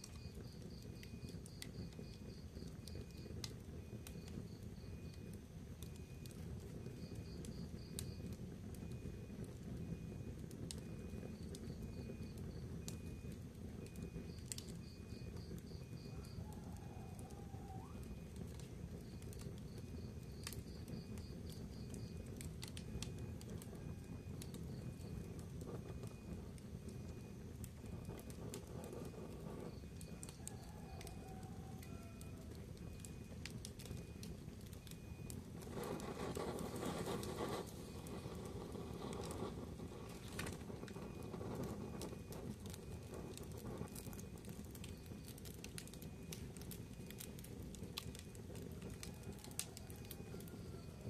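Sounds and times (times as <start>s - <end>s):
fire crackling and popping: 0.0s - 51.0s
low rumble of flames: 0.0s - 51.0s.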